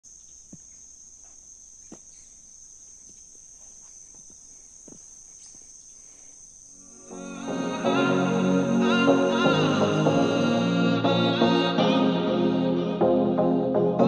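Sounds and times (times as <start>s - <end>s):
insects trilling: 0.0s - 10.8s.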